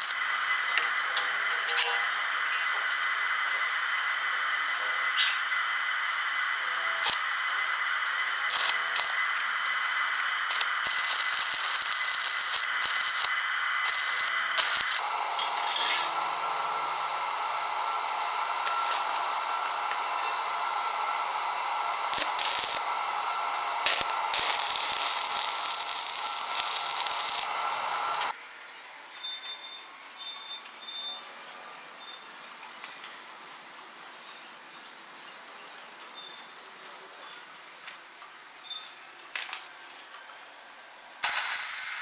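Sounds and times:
sharp welding pops: 0.0s - 3.1s, 7.0s - 16.1s, 22.0s - 28.3s, 41.2s - 42.0s
welding arc crackling and hissing: 0.0s - 28.4s, 39.3s - 42.0s.

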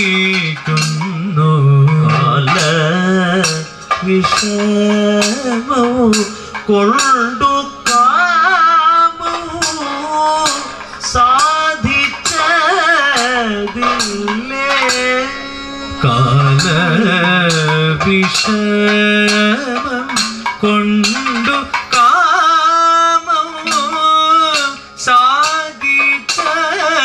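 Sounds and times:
men singing with ornaments: 0.0s - 27.0s
sharp percussion strokes: 0.0s - 27.0s.

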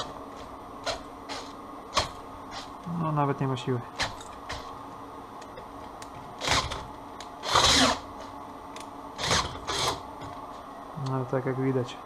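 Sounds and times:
cordless drill humming: 6.4s - 6.8s, 7.4s - 8.1s, 9.2s - 10.0s.

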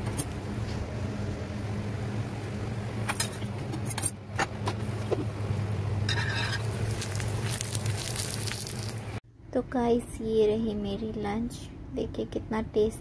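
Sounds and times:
steady low hum: 0.0s - 13.0s
short scrape on iron griddle: 6.1s - 6.8s.

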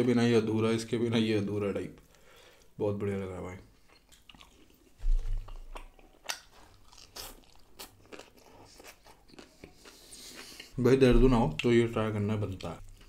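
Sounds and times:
crunchy chewing: 4.0s - 10.8s.

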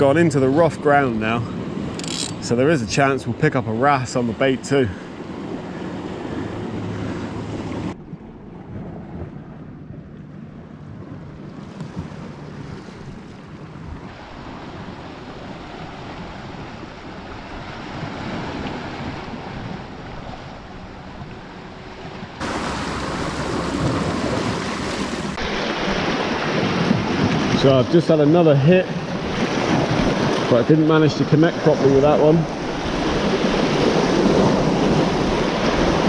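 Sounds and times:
sea washing against rocks: 11.8s - 21.4s, 22.0s - 36.0s.

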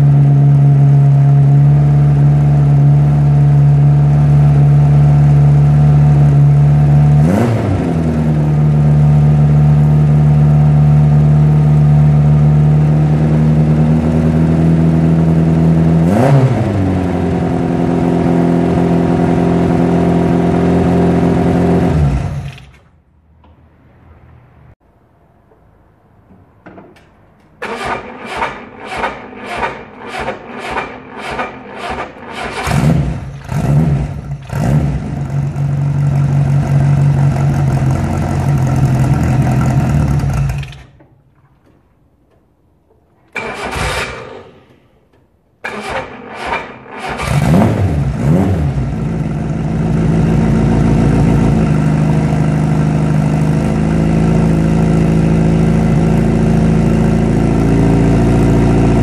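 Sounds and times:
car engine revving and idling: 0.0s - 22.7s, 27.7s - 40.9s, 45.6s - 59.0s
starter motor cranking: 27.6s - 33.4s.

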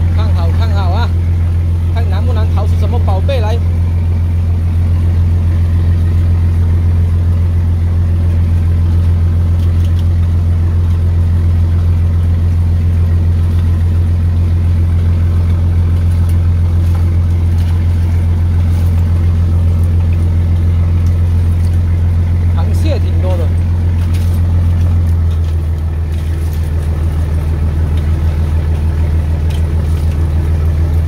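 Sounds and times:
boat engine droning: 0.0s - 31.0s.

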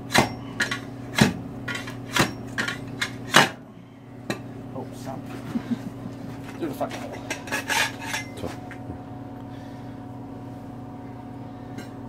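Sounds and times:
low hum: 7.3s - 12.0s.

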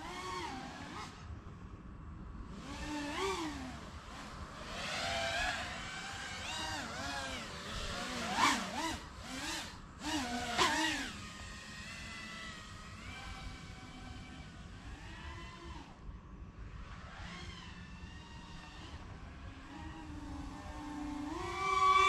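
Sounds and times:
drone motors whining: 0.0s - 1.7s, 2.4s - 22.0s.

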